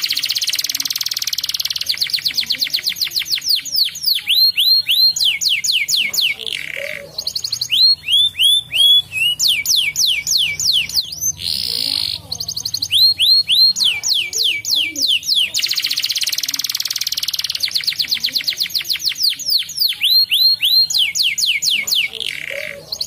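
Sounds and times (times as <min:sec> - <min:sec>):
canary singing: 0:00.0 - 0:23.0.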